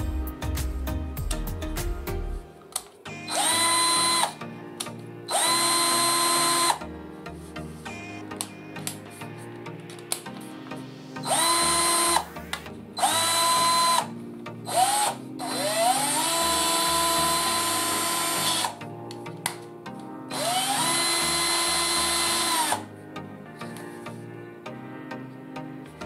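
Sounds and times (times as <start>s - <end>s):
cordless drill motor whine: 3.1s - 4.4s, 5.3s - 6.9s, 11.2s - 12.4s, 13.0s - 14.1s, 14.7s - 18.8s, 20.3s - 22.9s.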